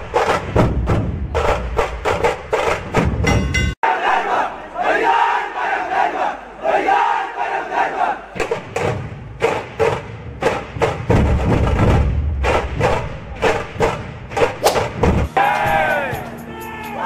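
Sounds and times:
drums beating fast rhythm: 0:00.0 - 0:03.8, 0:08.4 - 0:17.0
crowd shouting: 0:03.8 - 0:08.4, 0:15.3 - 0:17.0.

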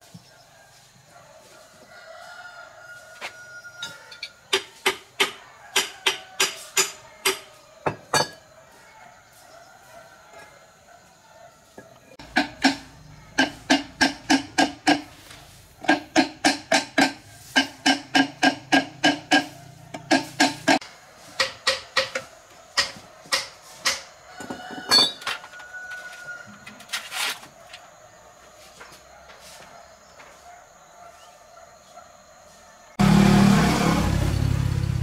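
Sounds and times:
hammer striking metal: 0:12.2 - 0:15.1, 0:15.9 - 0:20.8.

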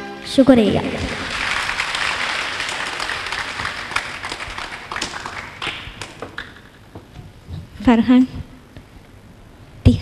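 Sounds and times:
audience applause: 0:00.9 - 0:06.7.

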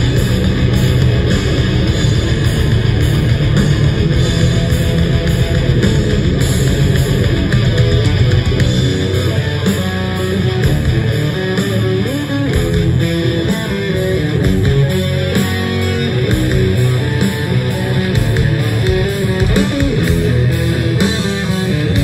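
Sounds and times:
bass guitar: 0:00.0 - 0:22.0
electric guitar melody: 0:00.0 - 0:22.0.

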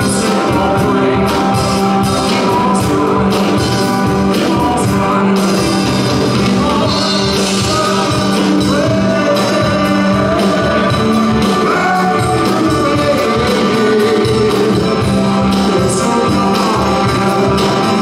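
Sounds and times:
band playing live music: 0:00.0 - 0:18.0.

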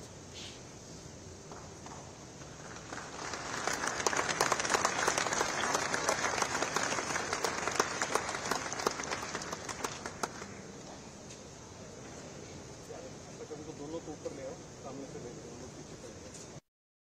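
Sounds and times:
crowd applauding: 0:02.4 - 0:10.6.

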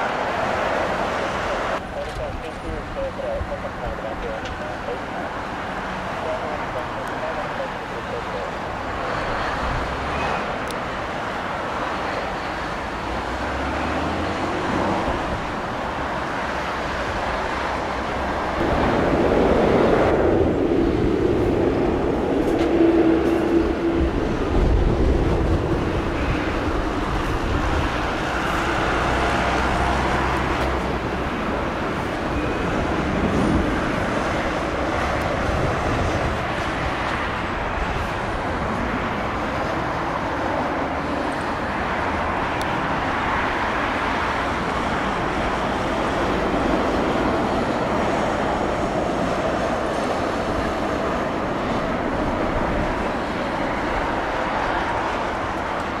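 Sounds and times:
jet engines rumbling: 0:00.0 - 0:56.0
wind on microphone: 0:14.3 - 0:56.0.

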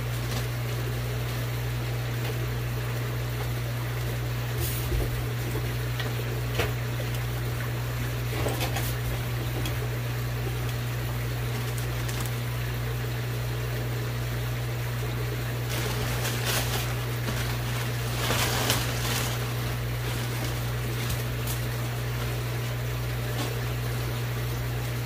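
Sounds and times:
plastic bag rustling and crinkling: 0:00.0 - 0:00.6, 0:11.5 - 0:12.5, 0:15.5 - 0:24.5
steady low hum: 0:00.0 - 0:25.0.

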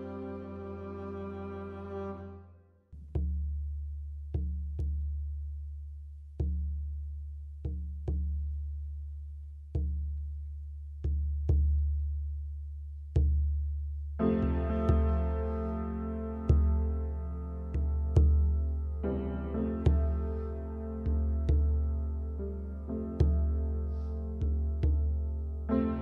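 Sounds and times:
orchestral string music: 0:00.0 - 0:03.0, 0:14.2 - 0:26.0.

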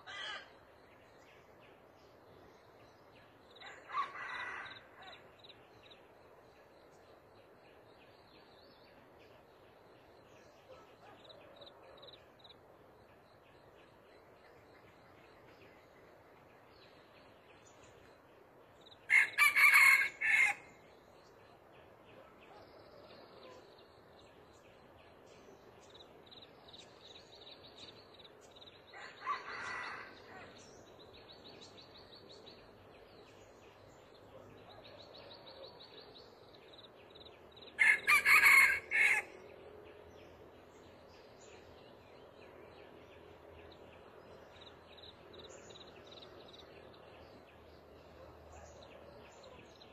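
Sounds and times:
roosters crowing: 0:19.1 - 0:20.7, 0:37.8 - 0:39.4.

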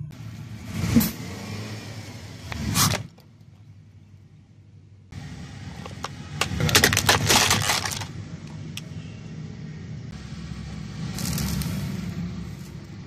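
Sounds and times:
car rumble: 0:00.0 - 0:13.0
plastic cracking under tyre: 0:05.9 - 0:08.1.

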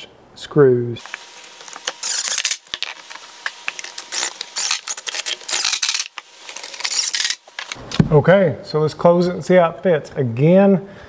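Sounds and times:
screws clicking and clattering: 0:03.8 - 0:07.8.

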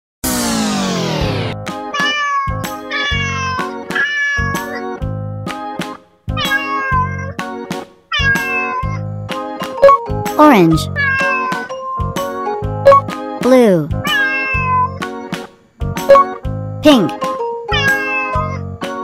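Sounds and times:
upbeat boogie-woogie music: 0:01.4 - 0:19.0
cat meowing: 0:01.9 - 0:05.0, 0:06.4 - 0:07.3, 0:08.1 - 0:09.0, 0:10.9 - 0:11.9, 0:14.0 - 0:15.0, 0:17.7 - 0:18.6.

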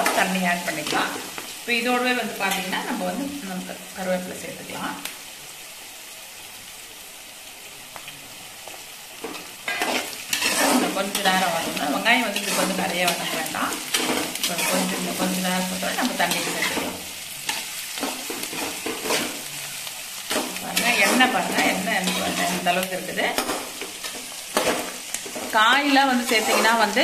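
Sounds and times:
onions sizzling in hot oil: 0:00.0 - 0:27.0
spoon scraping pan: 0:09.2 - 0:27.0.

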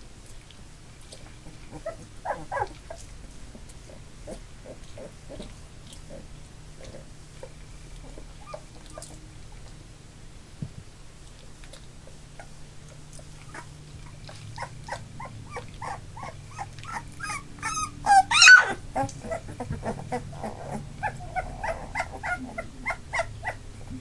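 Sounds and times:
puppies whimpering: 0:01.4 - 0:03.0, 0:06.8 - 0:09.2, 0:13.2 - 0:24.0
puppy yelping loudly: 0:01.7 - 0:03.0, 0:14.3 - 0:23.6.

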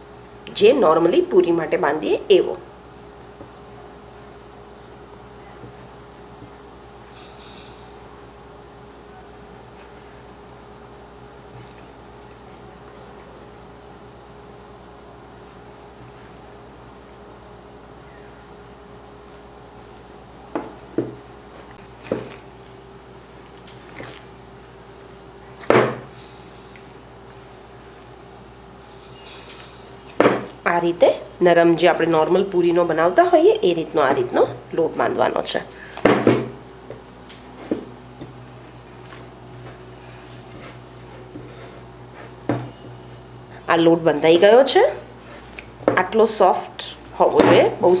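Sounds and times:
faint steady hum: 0:00.0 - 0:48.0
dough squishing: 0:20.8 - 0:48.0.

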